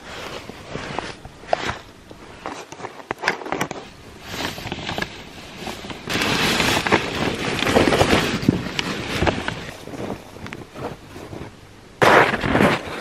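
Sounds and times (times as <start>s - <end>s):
rustling of nylon clothing: 0.0s - 11.6s
wind hiss on microphone: 3.9s - 13.0s.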